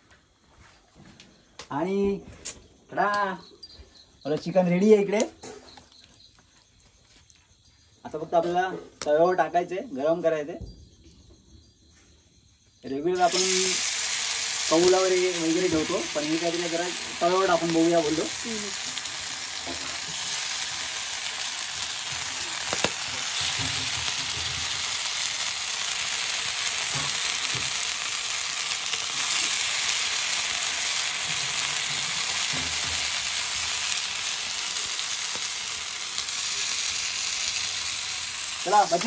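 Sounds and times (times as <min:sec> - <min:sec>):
chicken sizzling on griddle: 0:13.1 - 0:39.0.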